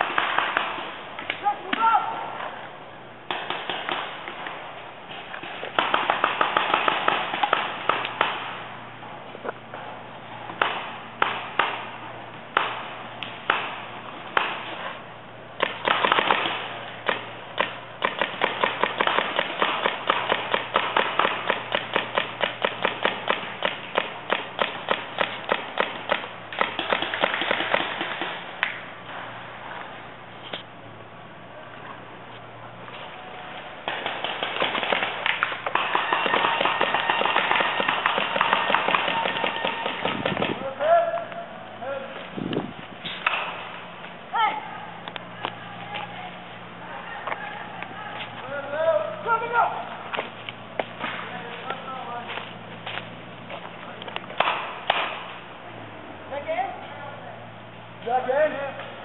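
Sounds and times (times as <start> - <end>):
paintball markers firing: 0.0 - 1.9, 3.3 - 8.6, 15.6 - 28.8, 33.8 - 40.7, 43.1 - 43.8, 54.0 - 55.4.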